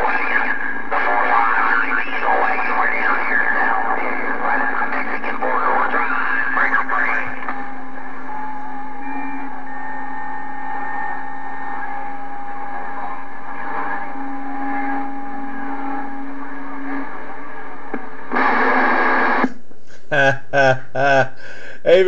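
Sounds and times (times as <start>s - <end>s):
radio speaker hiss: 0.0s - 22.0s
thin steady whistles: 8.2s - 16.4s.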